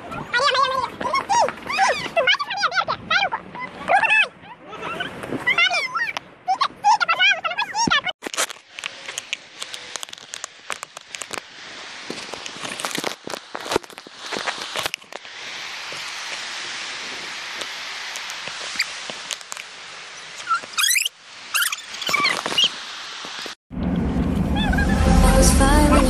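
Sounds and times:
steady rushing hiss: 8.6 - 23.6.

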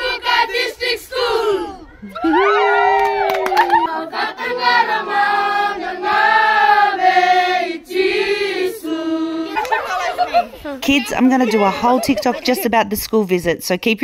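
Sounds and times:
children's choir singing: 0.0 - 1.8, 3.6 - 10.5.

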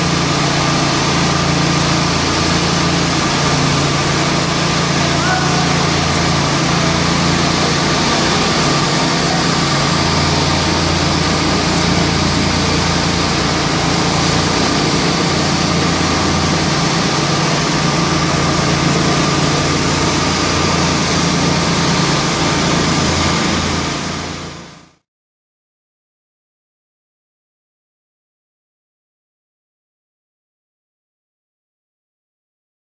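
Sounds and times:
concrete mixer truck running: 0.0 - 25.0
power trowel engines running: 0.0 - 25.0.

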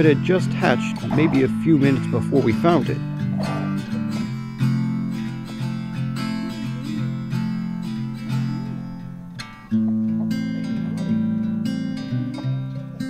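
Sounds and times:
acoustic guitar strumming chords: 0.0 - 13.0.

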